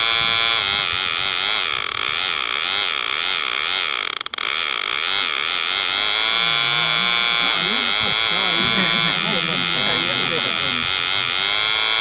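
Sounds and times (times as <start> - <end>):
small electric motor buzzing: 0.0 - 8.7.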